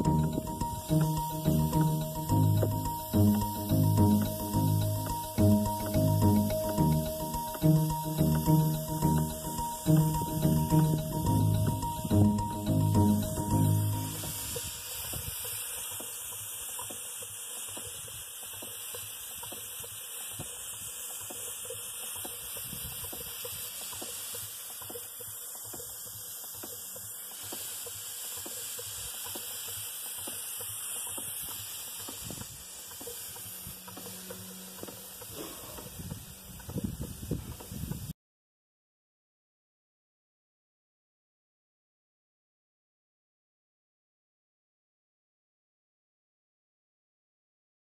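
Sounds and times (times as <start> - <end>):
steam hissing: 0.0 - 38.1.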